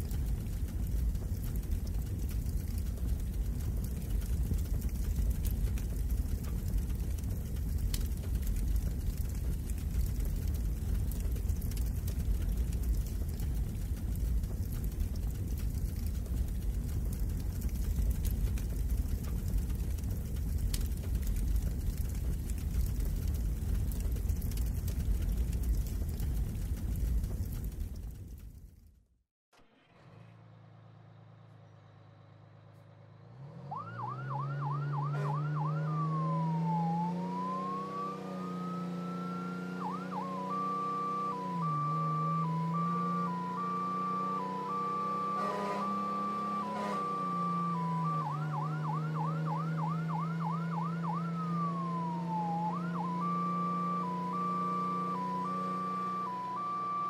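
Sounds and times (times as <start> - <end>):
vehicle engine humming: 0.0 - 28.6, 29.6 - 57.0
emergency vehicle siren: 33.3 - 57.0.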